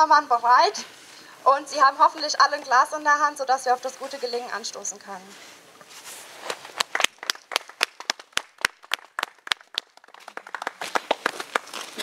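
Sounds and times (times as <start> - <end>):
people clapping: 6.6 - 12.0.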